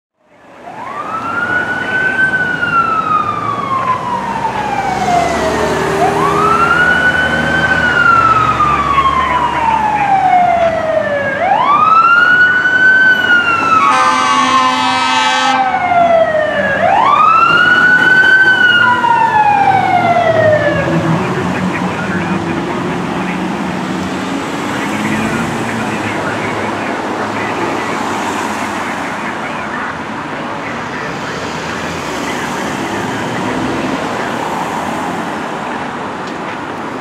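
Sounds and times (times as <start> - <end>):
fire engine siren wailing: 0.2 - 37.0
horn blast: 13.8 - 15.8.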